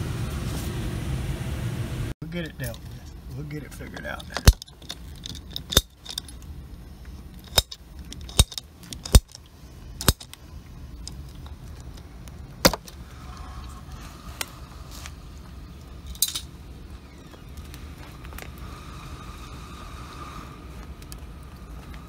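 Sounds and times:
steady low hum: 0.0 - 22.0
metallic clicks of hand tools: 4.0 - 6.4, 7.4 - 10.4.

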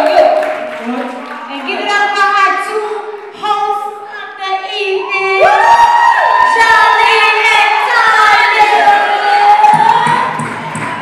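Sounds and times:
voices singing: 6.7 - 10.5.

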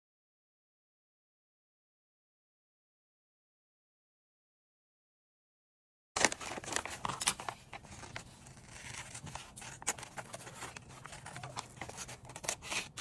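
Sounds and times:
paper rustling: 6.2 - 13.0
scissors cutting paper: 6.2 - 13.0.

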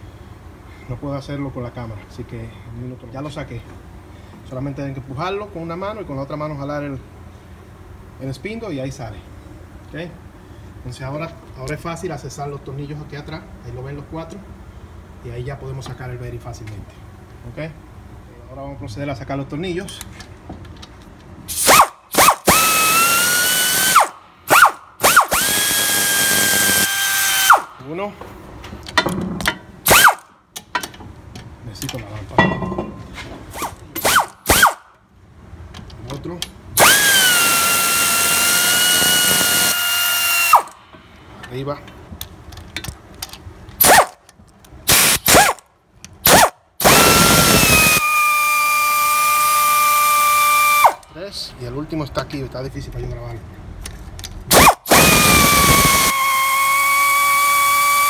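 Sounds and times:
electric ratchet whirring: 21.5 - 27.8, 29.8 - 30.3, 33.5 - 34.9, 36.8 - 40.8, 43.8 - 44.2, 44.9 - 45.6, 46.2 - 51.0, 54.5 - 58.0.

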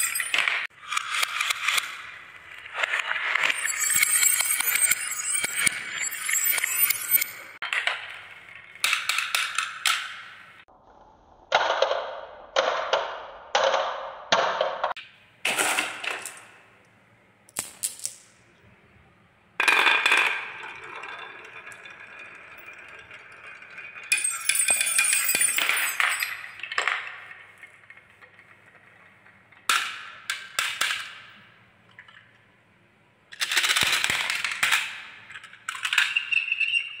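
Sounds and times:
marbles rolling on wooden tracks: 0.0 - 10.0, 19.6 - 31.3, 33.4 - 37.0
xylophone bar ringing: 3.4 - 7.6, 24.1 - 26.6.

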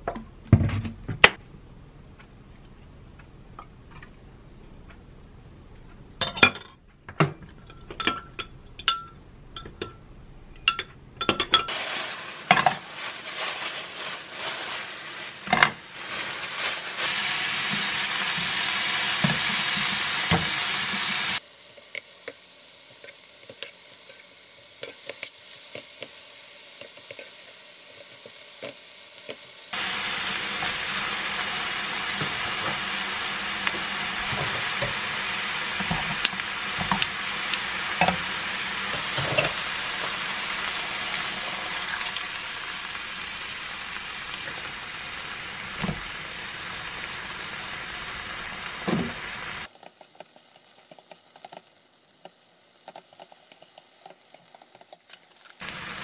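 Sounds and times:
metal spoon clinking on glass: 7.7 - 10.0, 10.6 - 11.7
beef sizzling in a frying pan: 11.7 - 56.0.

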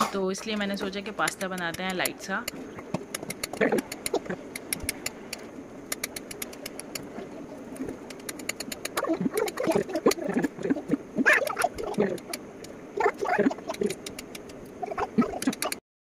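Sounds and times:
knife clicking on cutting board: 0.8 - 7.1, 8.0 - 10.2.

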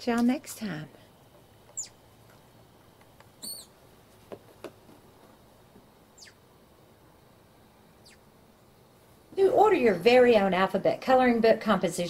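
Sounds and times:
high-pitched falling chirps: 3.4 - 3.7.

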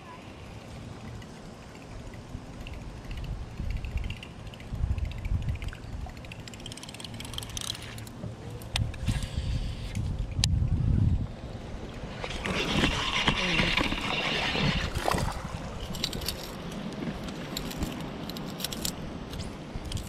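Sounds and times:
wind rumble on microphone: 2.0 - 6.6, 7.2 - 20.0
fishing reel handling noise: 2.6 - 10.5, 12.3 - 20.0.

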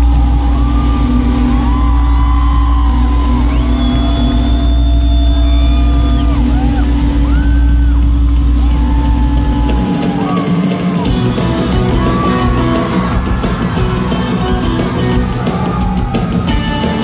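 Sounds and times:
low bass drone: 0.0 - 10.2
crowd whooping: 0.0 - 17.0
rock band playing live: 8.5 - 17.0.

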